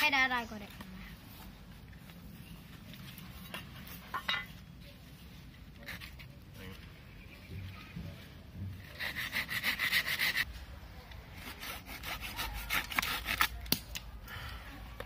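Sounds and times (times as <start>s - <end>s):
hand saw cutting wood: 8.8s - 10.4s, 11.4s - 13.5s.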